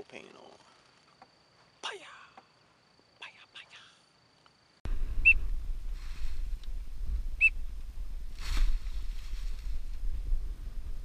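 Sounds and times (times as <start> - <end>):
wind rumbling on microphone: 4.9 - 11.0.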